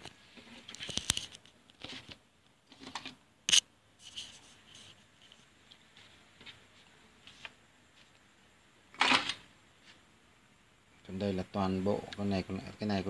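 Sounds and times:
light rubbing and scraping: 0.0 - 8.2.

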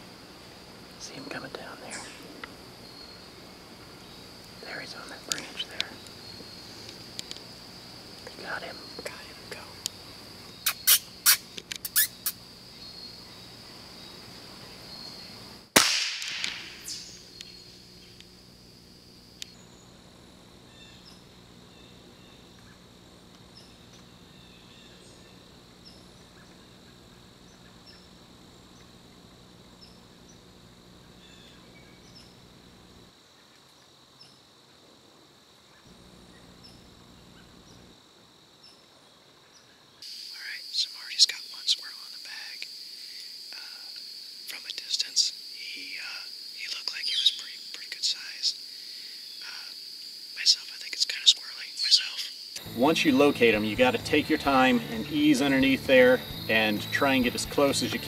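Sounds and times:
high insect drone: 0.0 - 58.0
rifle shot: 15.8 - 17.2.

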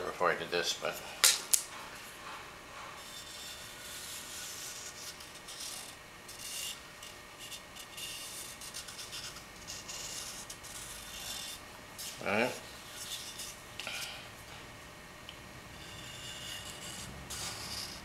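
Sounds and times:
hand scratching on paper: 2.8 - 6.8, 7.4 - 12.2, 12.9 - 13.6, 15.8 - 18.0.

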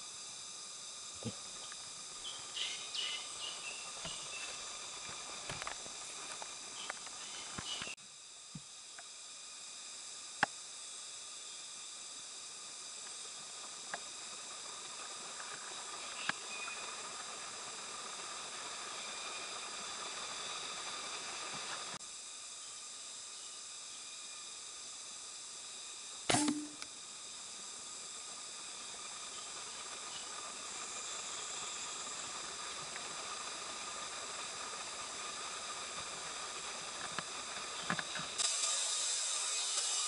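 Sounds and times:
insect chorus buzzing: 0.0 - 40.0
sharp click: 26.3 - 26.9.

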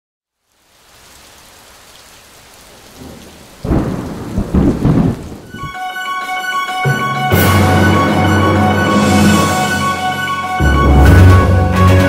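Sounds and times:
steady rain hiss: 0.2 - 5.8
loud thunderclap rumbling: 3.0 - 5.8.

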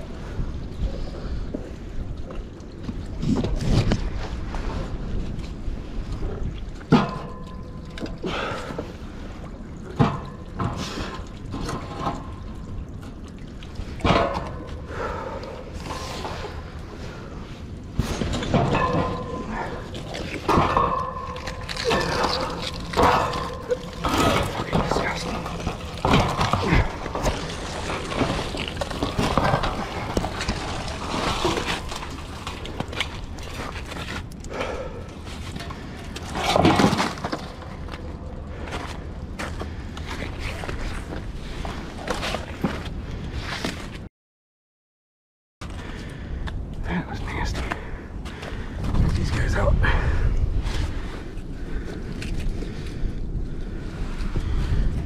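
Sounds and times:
wind rumbling on microphone: 0.0 - 44.0, 45.6 - 55.0
water splashing and dripping: 6.5 - 16.8.

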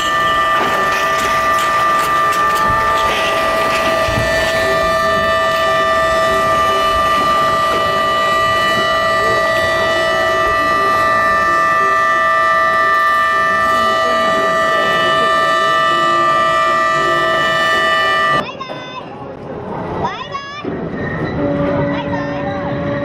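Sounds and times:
horns sounding a high chord: 0.0 - 18.4.

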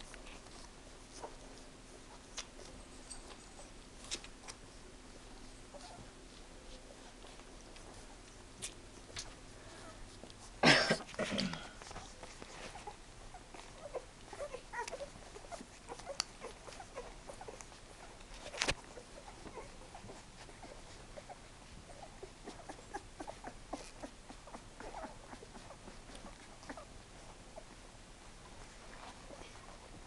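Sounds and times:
puppies sucking and swallowing: 4.0 - 27.8
puppies squeaking: 22.0 - 26.9.

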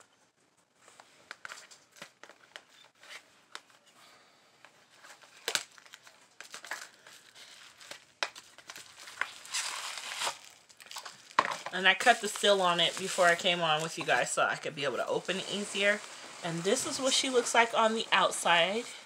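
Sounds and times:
plastic shrink-wrap crinkling: 5.0 - 19.0.

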